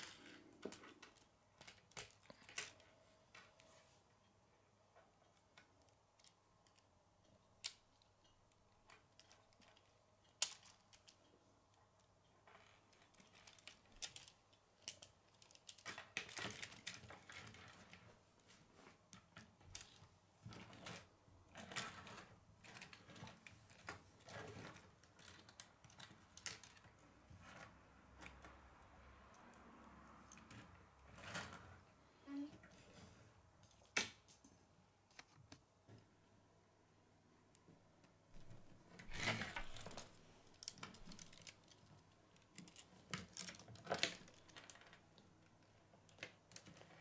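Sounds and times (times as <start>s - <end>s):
plastic pieces clicking and rattling: 0.0s - 2.9s, 8.9s - 11.2s, 12.5s - 18.0s, 19.4s - 28.5s, 38.4s - 45.0s.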